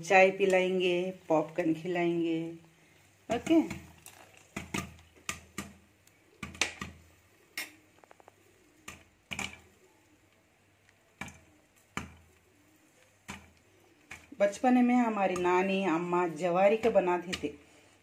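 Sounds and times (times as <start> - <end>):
popcorn popping in a wok: 3.3 - 17.6.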